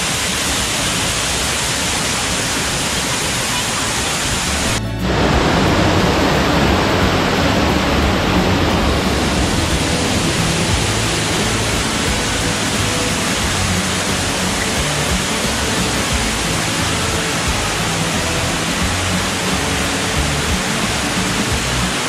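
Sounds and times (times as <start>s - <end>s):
waterfall roaring: 0.0s - 22.0s
music: 4.5s - 22.0s.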